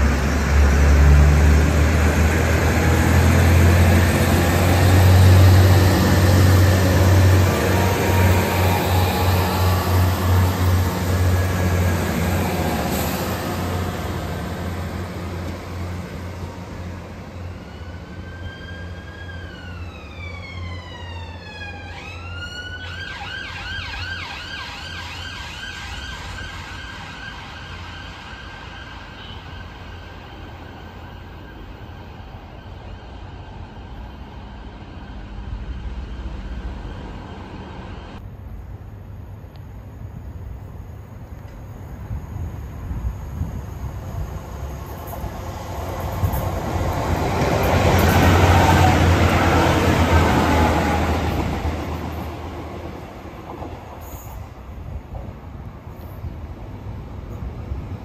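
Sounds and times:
train engine drone: 0:00.0 - 0:58.0
emergency vehicle siren: 0:17.2 - 0:33.3.

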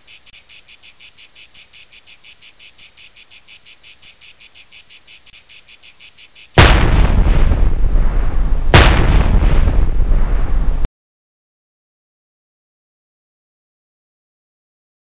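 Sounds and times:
cricket chirping: 0:00.0 - 0:06.6.

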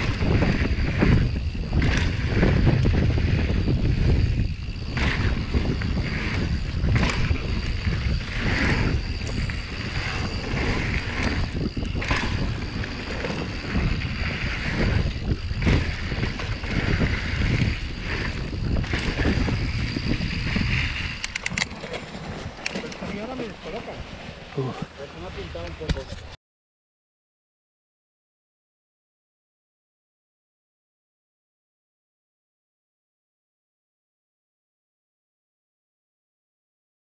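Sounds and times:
bike tyres rolling on dirt: 0:00.0 - 0:26.4
wind buffeting microphone: 0:00.0 - 0:26.4.

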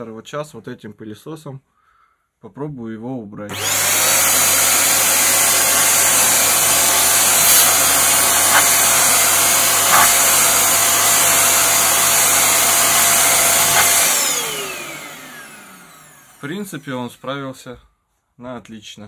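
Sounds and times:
vacuum cleaner whining: 0:03.5 - 0:16.8.

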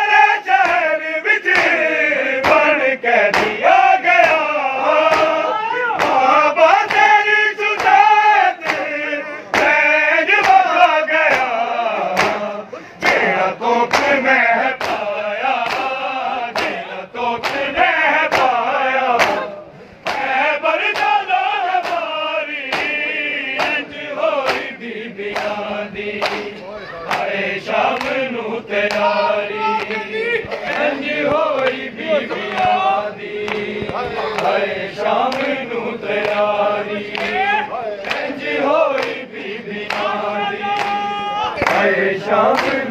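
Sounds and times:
men chanting in chorus: 0:00.0 - 0:42.9
hands slapping chests: 0:00.6 - 0:00.9, 0:01.5 - 0:01.8, 0:02.4 - 0:08.9, 0:09.5 - 0:09.8, 0:10.4 - 0:10.7, 0:11.3 - 0:16.8, 0:17.4 - 0:24.7, 0:25.3 - 0:28.2, 0:32.4 - 0:34.6, 0:35.2 - 0:35.6, 0:38.0 - 0:39.2, 0:39.8 - 0:41.9, 0:42.5 - 0:42.8.

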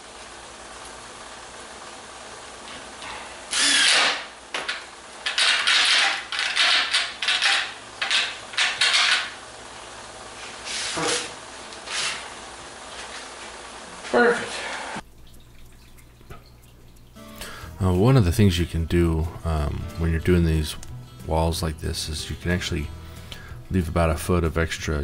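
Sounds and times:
drill set down on wood: 0:02.7 - 0:09.4
scrapes and knocks on wood: 0:10.4 - 0:12.3.

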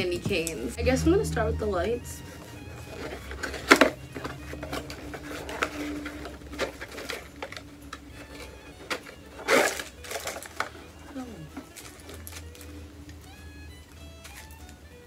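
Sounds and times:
cardboard box handling: 0:02.9 - 0:10.7.

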